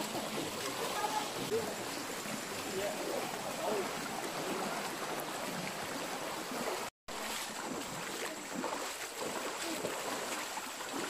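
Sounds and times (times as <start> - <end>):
stream rushing over stones: 0.0 - 11.0.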